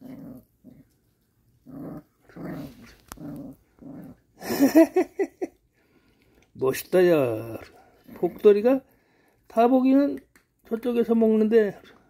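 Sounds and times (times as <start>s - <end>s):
puppy snarling: 0.0s - 1.0s, 1.6s - 4.9s, 7.5s - 8.6s
puppy growling: 0.0s - 5.4s, 7.3s - 8.8s.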